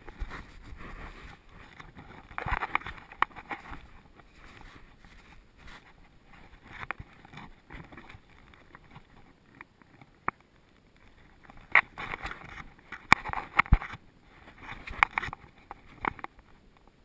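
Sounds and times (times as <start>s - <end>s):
camera rubbing against fur: 0.0s - 10.2s, 11.0s - 16.6s.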